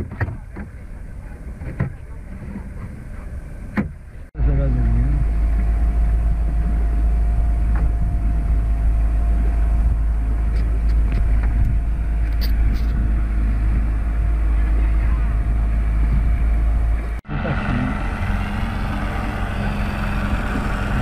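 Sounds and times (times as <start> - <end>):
deep rumble on microphone: 0.0 - 21.0
outboard motor running: 0.0 - 21.0.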